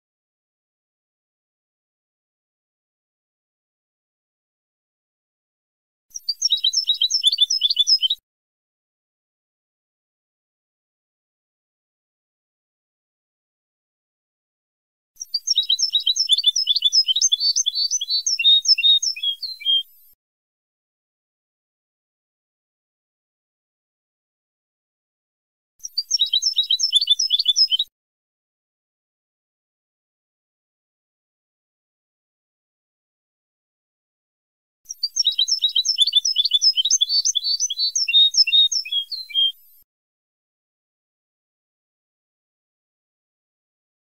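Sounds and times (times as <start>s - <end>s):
goldfinch twittering song: 6.2s - 8.2s, 15.2s - 20.0s, 25.8s - 27.9s, 34.9s - 39.8s.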